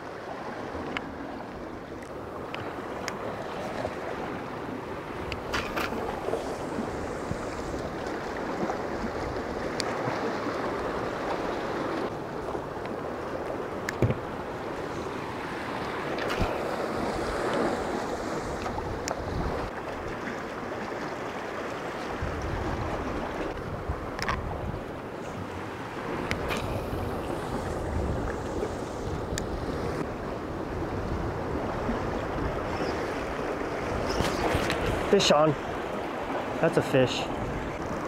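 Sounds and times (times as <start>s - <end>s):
ocean surf on rocky shore: 0.0s - 38.0s
wind buffeting microphone: 15.8s - 20.2s, 22.0s - 36.6s.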